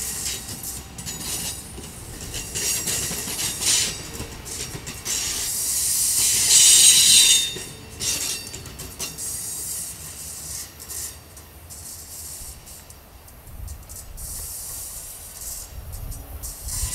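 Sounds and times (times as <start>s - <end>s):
train cars rumbling: 0.0s - 16.9s
train wheels squealing: 0.0s - 16.9s
wheels clicking over rail joints: 0.0s - 16.9s.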